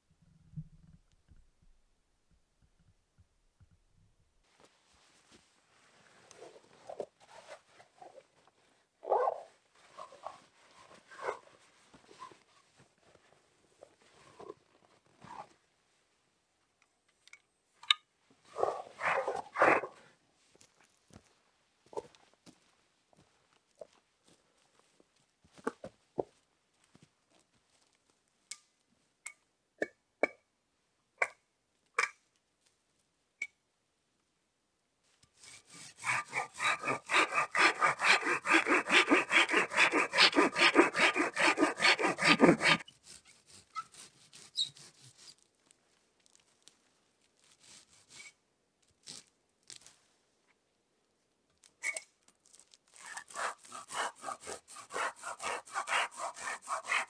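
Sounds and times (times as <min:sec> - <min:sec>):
hand saw cutting wood: 0:35.4 - 0:45.4, 0:53.0 - 0:57.0.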